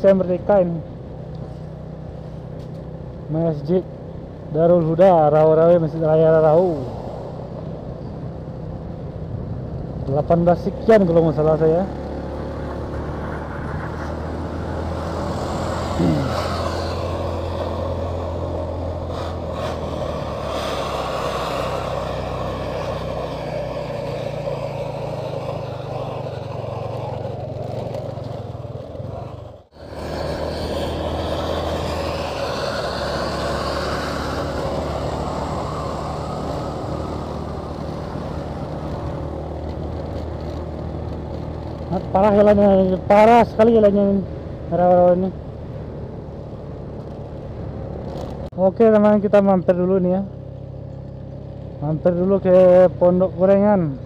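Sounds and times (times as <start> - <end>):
wind and road noise: 0.0 - 54.0
motorcycle engine running: 14.4 - 43.7.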